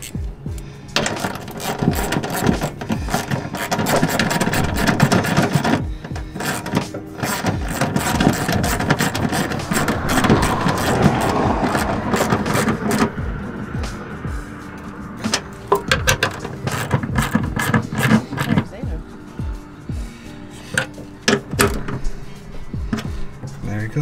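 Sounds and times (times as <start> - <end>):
hand ratchet clicking: 0.0 - 13.2, 15.2 - 18.8, 20.6 - 22.1.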